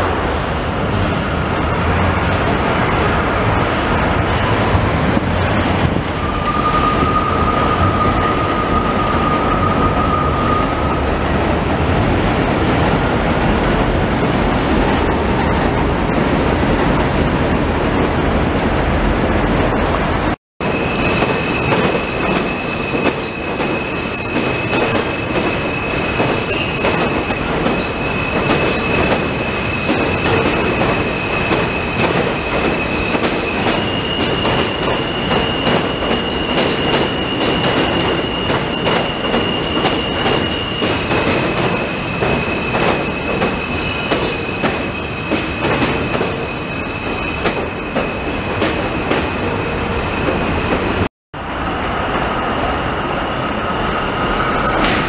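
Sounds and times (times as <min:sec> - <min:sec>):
train wheels rumbling on rails: 0:00.0 - 0:55.0
high-pitched train tone: 0:05.6 - 0:11.3, 0:20.6 - 0:51.1.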